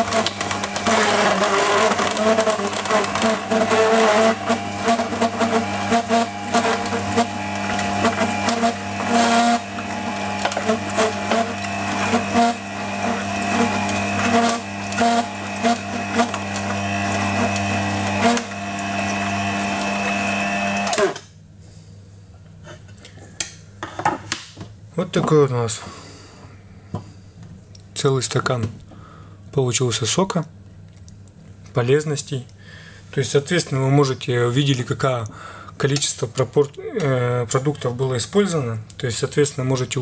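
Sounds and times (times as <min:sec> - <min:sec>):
crackling clicks of crushing: 0:00.0 - 0:03.5, 0:30.8 - 0:31.8
juicer motor hum: 0:00.0 - 0:21.4.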